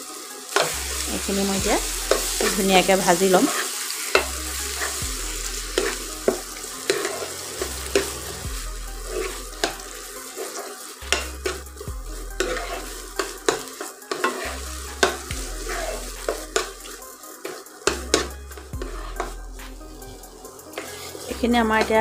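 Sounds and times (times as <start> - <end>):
paste sizzling in hot oil: 0.0 - 22.0
metal spoon scraping a pan: 0.3 - 22.0.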